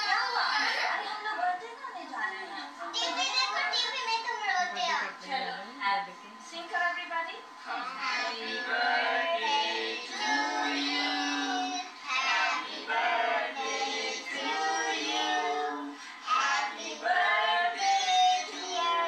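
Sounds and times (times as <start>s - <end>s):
children and women singing: 8.0s - 19.0s.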